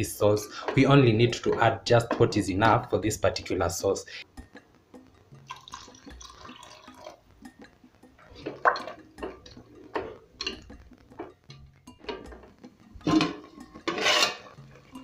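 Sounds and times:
wooden spoon scraping metal pot: 0.2s - 3.0s, 12.0s - 15.0s
water pouring into a pot: 5.4s - 7.2s.

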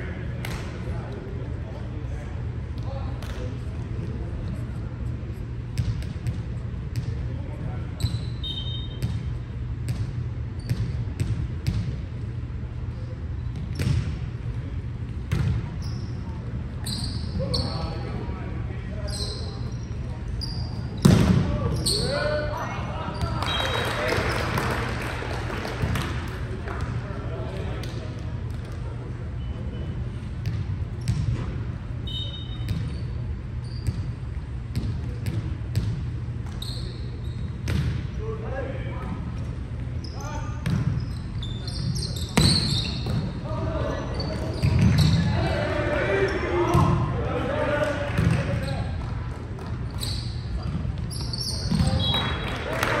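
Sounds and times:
low rumble of hall: 0.0s - 53.0s
sneaker squeaks on court: 8.0s - 9.3s, 9.9s - 11.8s, 13.4s - 14.1s, 15.3s - 18.0s, 19.0s - 22.2s, 29.4s - 38.0s, 40.0s - 45.3s, 48.2s - 52.4s
volleyball hits and bounces: 20.9s - 21.5s, 37.6s - 38.0s, 47.8s - 49.8s.

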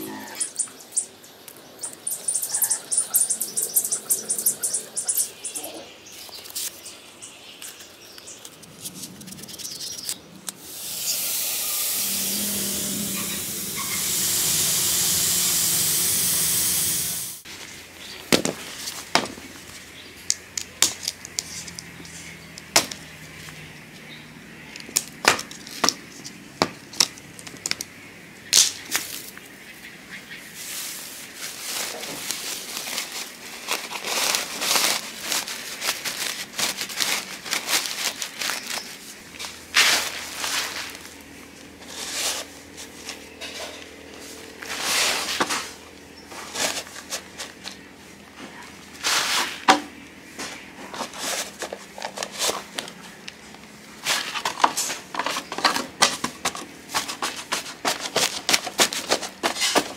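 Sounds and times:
jug scooping soil: 30.6s - 47.8s, 48.9s - 49.6s, 50.4s - 53.2s, 54.0s - 59.9s
plastic sack rustling: 30.6s - 47.8s, 54.0s - 59.9s.

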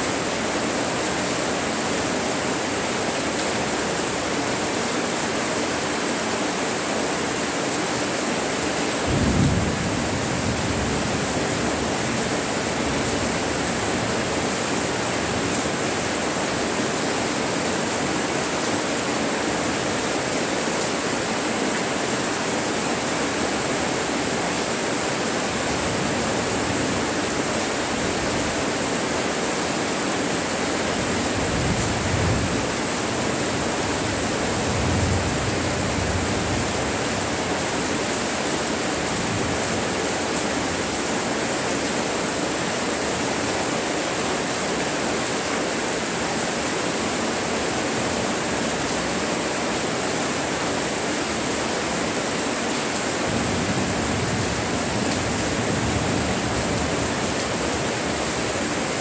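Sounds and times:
steady rain falling: 0.0s - 59.0s
low rumble of thunder: 9.1s - 11.6s.

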